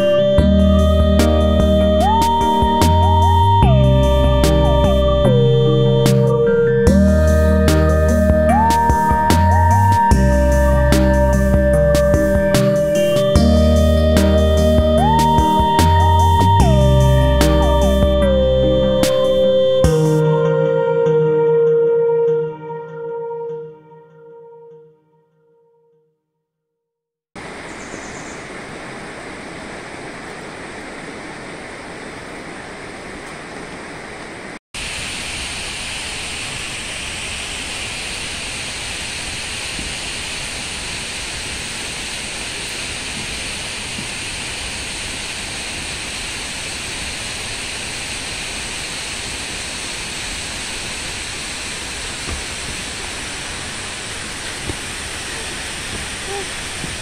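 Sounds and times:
water rushing: 27.4s - 57.0s.

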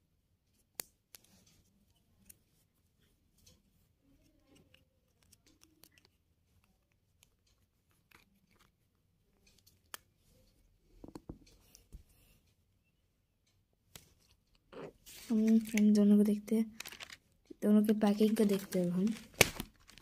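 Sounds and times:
handling clicks and rustles: 16.7s - 17.4s, 18.2s - 20.0s.

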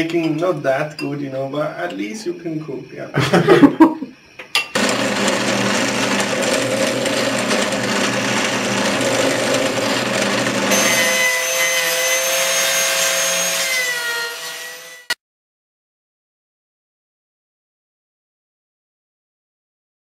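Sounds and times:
drill press whining: 4.8s - 15.2s
power tool machining wood: 4.8s - 15.2s.

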